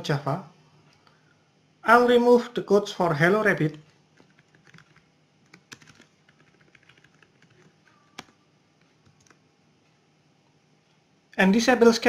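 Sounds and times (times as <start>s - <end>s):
keyboard keystrokes and clicks: 4.2s - 9.4s.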